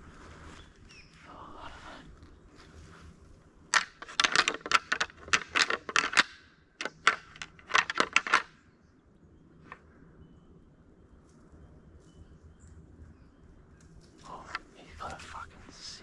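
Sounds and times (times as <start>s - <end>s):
twigs and leaves crunching underfoot: 0.0s - 6.3s, 13.7s - 15.9s.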